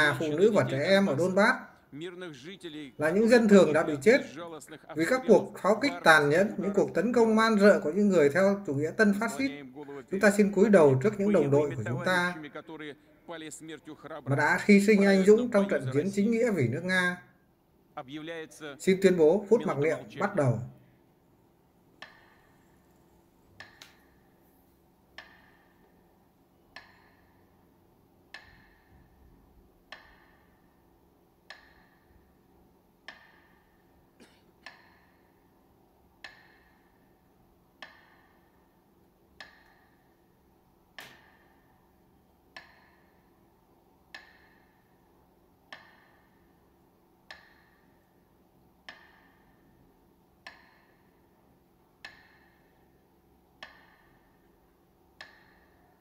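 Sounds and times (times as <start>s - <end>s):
metronome ticking: 0.0s - 1.6s, 2.4s - 4.4s, 5.0s - 12.5s, 14.3s - 17.1s, 21.9s - 22.9s, 25.0s - 51.4s, 52.0s - 56.0s.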